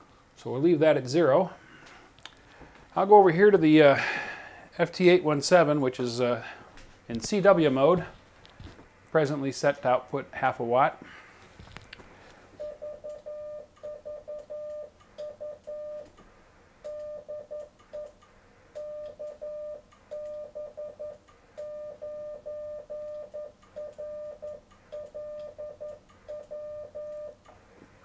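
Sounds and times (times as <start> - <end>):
morse code beeps: 12.6 - 16.1, 16.9 - 18.2, 18.8 - 27.4.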